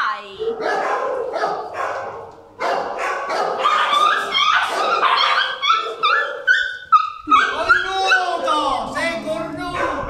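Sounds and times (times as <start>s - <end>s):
puppies yipping and whining: 3.6s - 10.0s.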